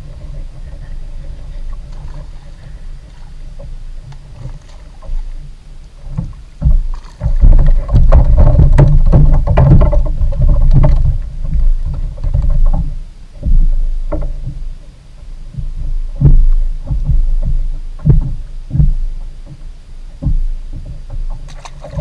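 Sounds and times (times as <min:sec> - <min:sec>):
water slapping against kayak hull: 0:00.0 - 0:22.0
dull knocks on hull: 0:06.1 - 0:14.7, 0:15.5 - 0:22.0.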